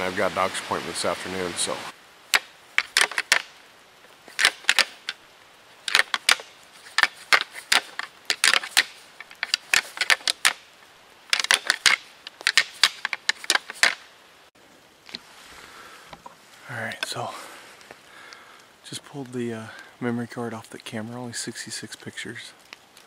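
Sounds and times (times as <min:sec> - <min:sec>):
deer antlers clacking together: 0:02.3 - 0:03.6, 0:04.3 - 0:05.2, 0:05.9 - 0:10.6, 0:11.3 - 0:14.0.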